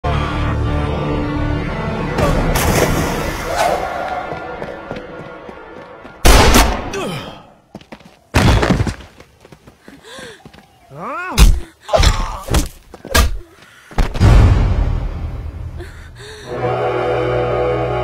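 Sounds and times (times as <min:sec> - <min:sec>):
man grunting: 0:06.9 - 0:07.5, 0:10.9 - 0:12.5.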